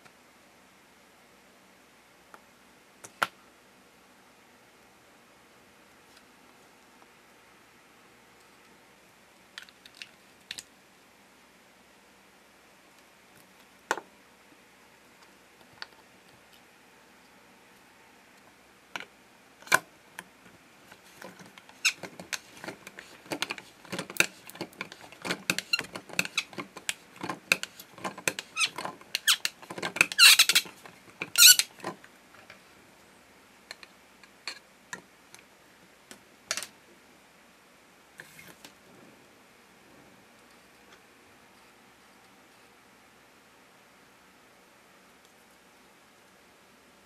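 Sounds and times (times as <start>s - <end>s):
plastic tool clicking and creaking: 21.2s - 32.0s
plastic squeaks: 21.7s - 22.8s, 24.9s - 31.8s.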